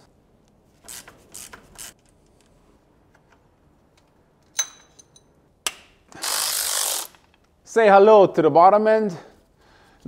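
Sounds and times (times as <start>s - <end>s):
ratchet clicks and scrapes: 0.8s - 2.4s, 6.2s - 7.4s
sharp metal clink: 4.6s - 5.3s.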